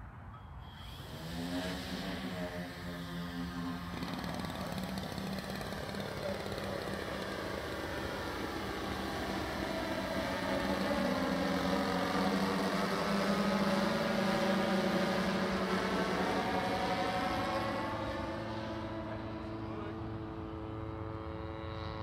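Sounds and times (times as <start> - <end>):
drone propellers whirring: 0.2 - 22.0.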